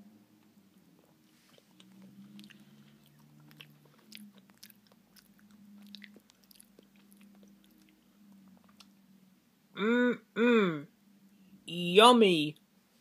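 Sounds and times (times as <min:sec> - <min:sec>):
steady low hum: 0:00.0 - 0:11.7
chewing and wet mouth clicks: 0:00.7 - 0:09.0.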